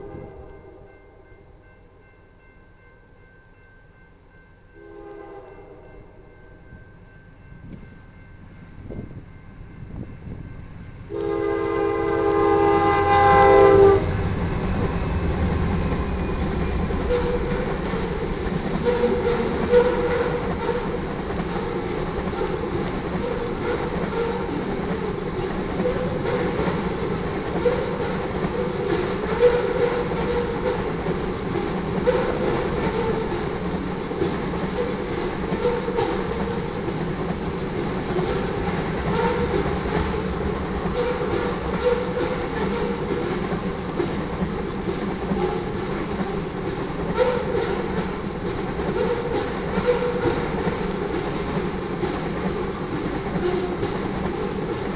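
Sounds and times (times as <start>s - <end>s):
locomotive air horn: 0.0s - 0.9s, 4.8s - 6.3s, 11.1s - 14.3s, 17.0s - 17.7s, 18.8s - 21.0s, 23.2s - 24.6s, 29.2s - 30.9s, 39.1s - 39.6s, 40.9s - 43.0s, 47.2s - 47.8s, 49.0s - 50.4s
train cars rumbling past: 0.0s - 54.9s.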